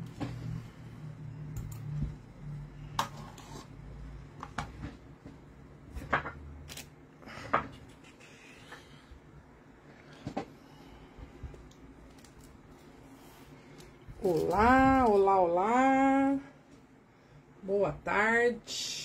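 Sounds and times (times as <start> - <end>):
low hum: 0.0 - 6.0
paper and craft materials handled: 12.0 - 15.3.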